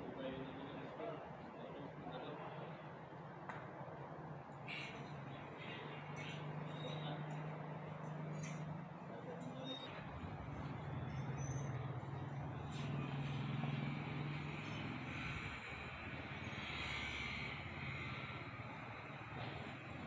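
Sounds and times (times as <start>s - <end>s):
street noise: 0.0s - 20.0s
vehicle engine running: 5.1s - 20.0s.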